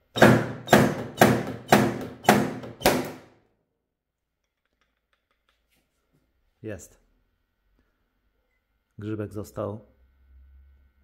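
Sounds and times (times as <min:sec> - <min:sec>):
slide hammer knocking: 0:00.1 - 0:03.2.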